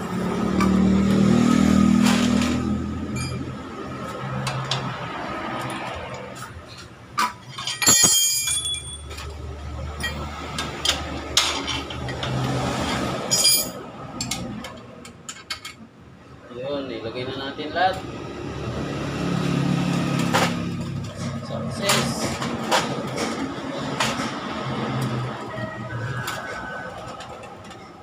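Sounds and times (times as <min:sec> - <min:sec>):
metal tools clinking and rattling: 0:02.1 - 0:03.5, 0:07.2 - 0:15.8.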